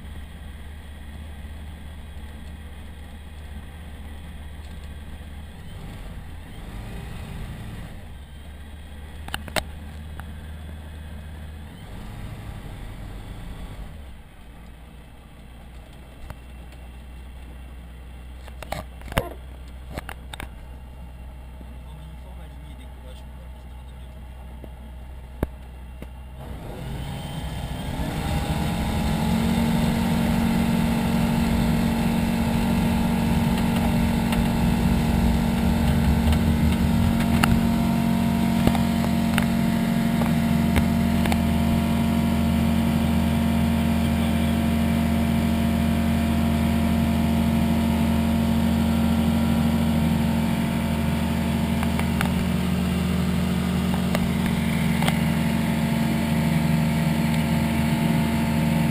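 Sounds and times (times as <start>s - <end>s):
aircraft engine and propeller: 26.4s - 58.9s.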